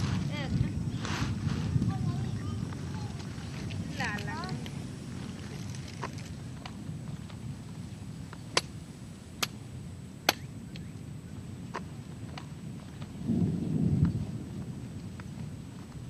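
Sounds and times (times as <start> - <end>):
branches cracking and snapping: 2.7 - 6.8.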